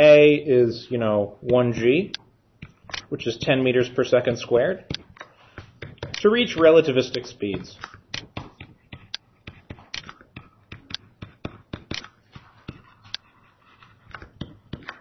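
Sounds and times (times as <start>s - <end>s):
stylus tapping on tablet screen: 2.6s - 3.0s, 4.8s - 15.0s.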